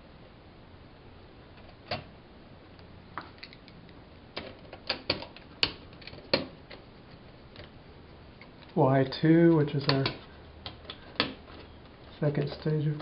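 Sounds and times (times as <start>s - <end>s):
fingers clicking on thermostat wires: 2.8s - 7.8s, 9.4s - 13.0s.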